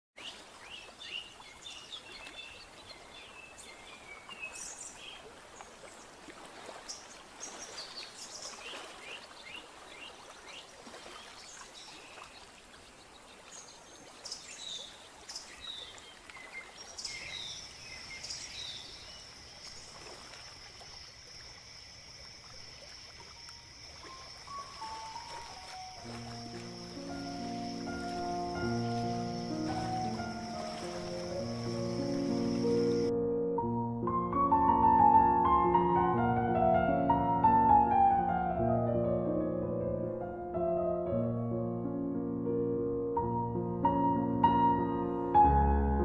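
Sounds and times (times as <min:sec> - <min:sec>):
even hiss: 0:24.1 - 0:33.1.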